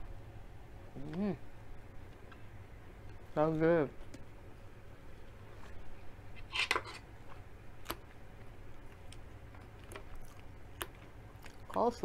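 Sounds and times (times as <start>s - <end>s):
chewing and mouth sounds: 7.2s - 12.0s.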